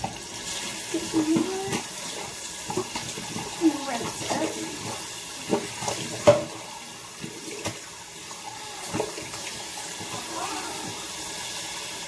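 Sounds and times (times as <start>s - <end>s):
sink tap running: 0.0s - 12.0s
washcloth rinsed under tap: 0.0s - 12.0s.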